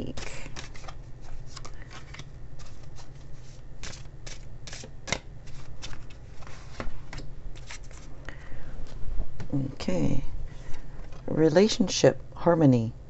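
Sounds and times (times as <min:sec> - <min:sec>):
cards being shuffled: 0:00.0 - 0:08.1.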